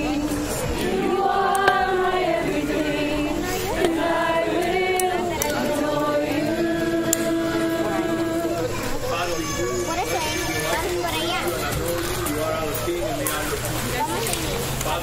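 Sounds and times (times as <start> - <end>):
group singing a hymn: 0.0 - 9.2.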